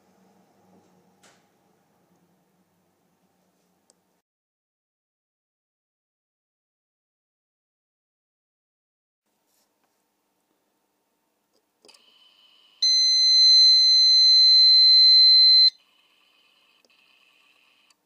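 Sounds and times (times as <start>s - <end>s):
high-pitched warning beep: 12.8s - 15.8s.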